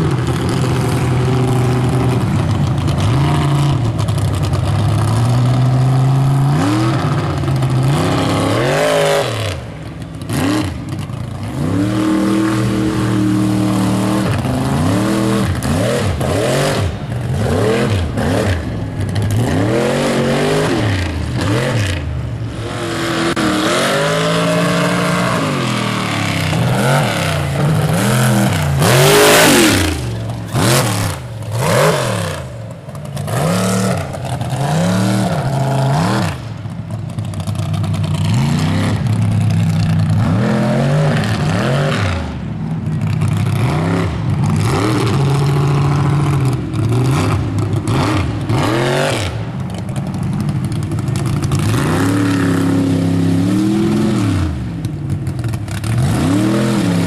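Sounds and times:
truck engine revving: 0.0 - 57.0
truck passing rush: 0.0 - 57.0.

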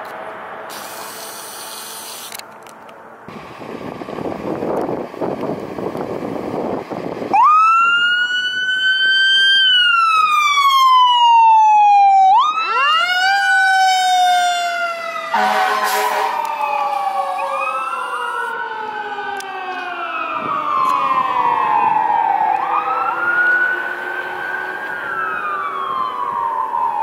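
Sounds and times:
vehicle rumble: 0.0 - 27.0
lower siren winding: 0.7 - 2.7, 16.3 - 18.6
electronic siren wailing: 7.3 - 27.0
air horn blast: 15.3 - 16.5.

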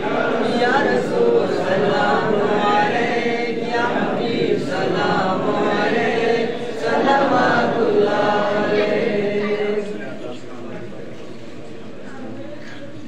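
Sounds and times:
male voices chanting in unison: 0.0 - 10.0.

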